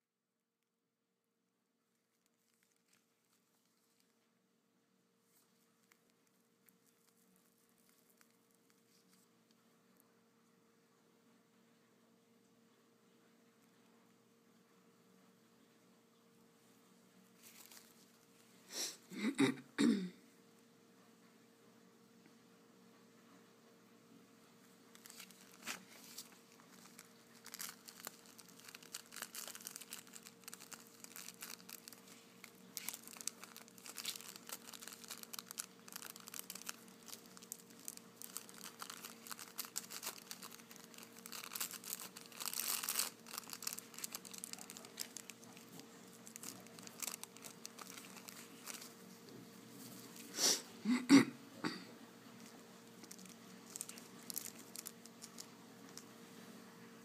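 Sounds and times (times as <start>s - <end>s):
faint steady hum: 0.0s - 57.0s
plastic bags crinkling: 2.0s - 4.2s, 17.4s - 18.4s, 24.9s - 50.3s, 52.4s - 56.2s.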